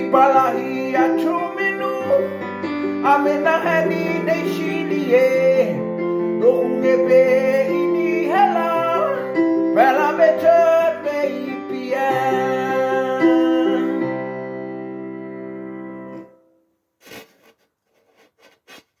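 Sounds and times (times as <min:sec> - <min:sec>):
man singing: 0:00.0 - 0:14.4.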